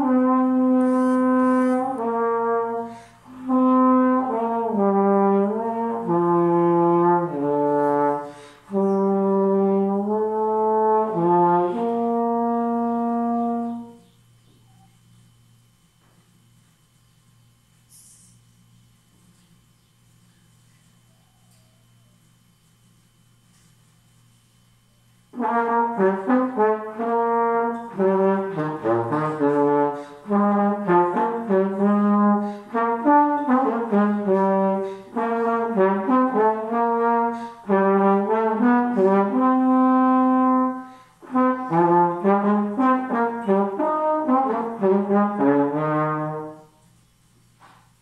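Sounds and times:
slide trombone melody: 0.0 - 14.0, 25.3 - 47.0.

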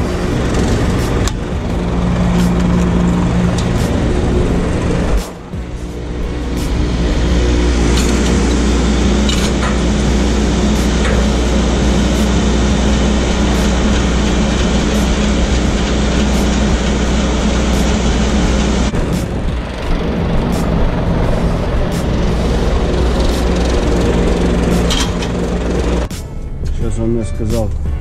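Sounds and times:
loud rushing noise: 0.0 - 26.4
truck diesel engine running: 0.0 - 26.8.

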